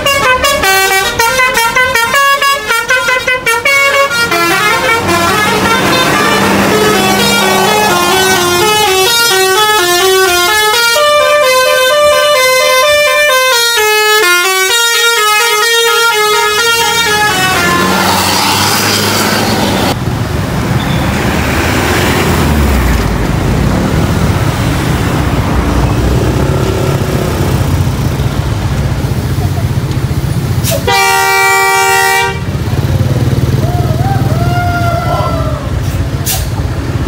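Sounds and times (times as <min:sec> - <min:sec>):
bus horn playing melody: 0:00.0 - 0:18.3, 0:30.6 - 0:32.6
diesel engine rumble: 0:00.0 - 0:37.0.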